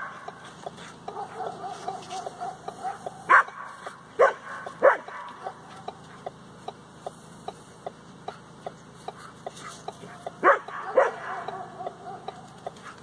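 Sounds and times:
faint regular ticking: 0.0s - 13.0s
small dog barking: 1.0s - 6.0s, 10.0s - 12.8s.

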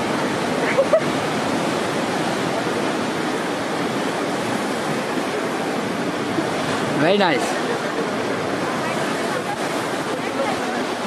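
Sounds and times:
sea surf: 0.0s - 11.0s
wind at the shore: 0.0s - 11.0s.

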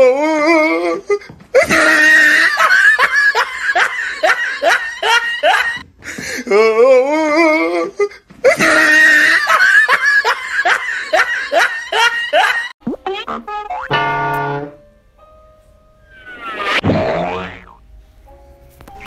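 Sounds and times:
loud human laughter: 0.8s - 5.8s, 7.2s - 12.7s.

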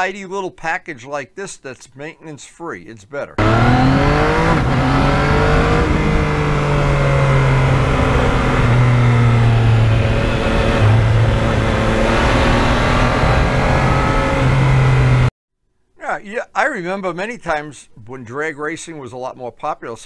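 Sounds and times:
motorcycle engine running: 3.4s - 15.3s.

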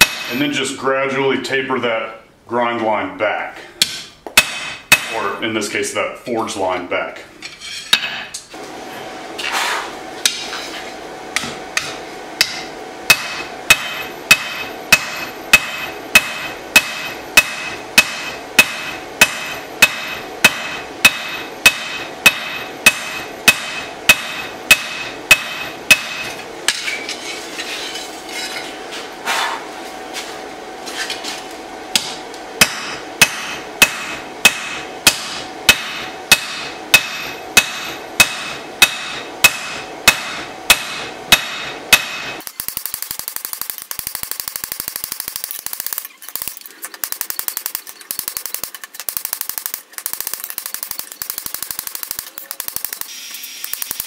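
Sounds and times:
hammer striking on anvil: 0.0s - 0.4s, 3.8s - 5.2s, 11.4s - 27.1s, 32.0s - 42.4s.

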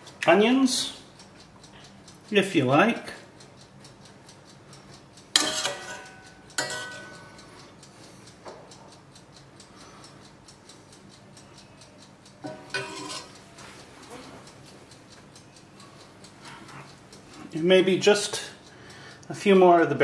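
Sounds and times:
utensil clinking against cookware: 5.4s - 7.3s, 12.4s - 13.4s.

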